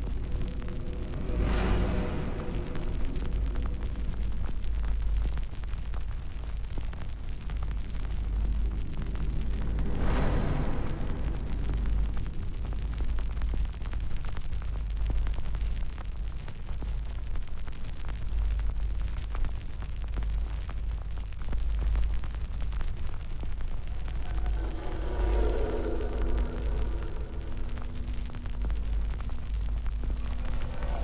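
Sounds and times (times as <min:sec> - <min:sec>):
fire crackling and popping: 0:11.5 - 0:31.0.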